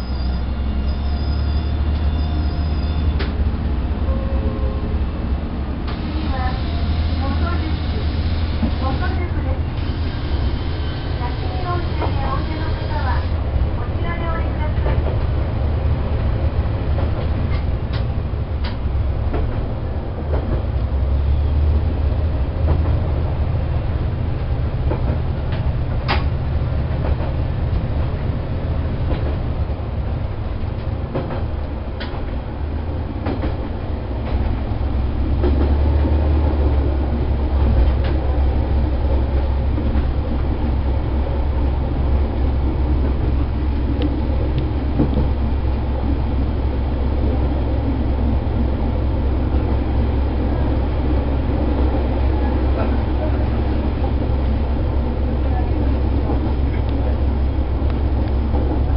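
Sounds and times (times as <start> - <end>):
railcar engine drone: 0.0 - 58.9
train wheel rumble: 0.0 - 58.9
faint rail clicks: 3.1 - 3.4, 16.9 - 19.7, 24.8 - 28.1, 30.6 - 32.4, 37.6 - 38.3, 55.5 - 57.2.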